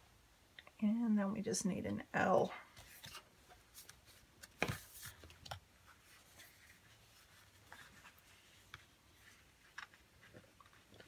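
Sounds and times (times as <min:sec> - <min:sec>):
paper rustling: 0:02.7 - 0:11.0.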